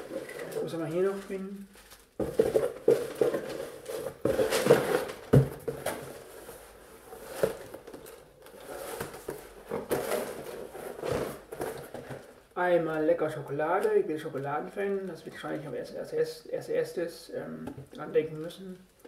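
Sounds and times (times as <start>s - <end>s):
cardboard packaging rustling: 0.0s - 12.5s.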